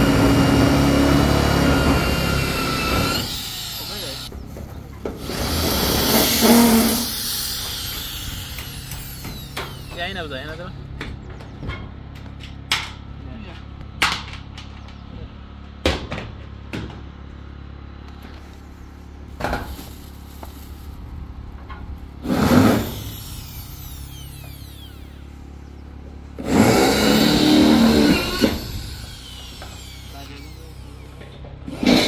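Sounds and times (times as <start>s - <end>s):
electric power tool running: 0.0s - 10.9s, 19.4s - 21.4s, 22.0s - 32.0s.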